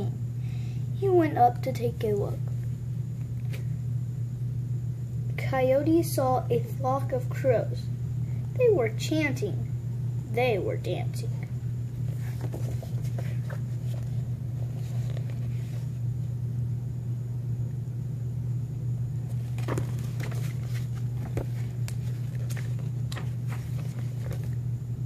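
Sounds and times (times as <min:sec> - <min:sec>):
steady low hum: 0:00.0 - 0:25.0
book pages rustling: 0:12.0 - 0:16.0, 0:19.3 - 0:24.6.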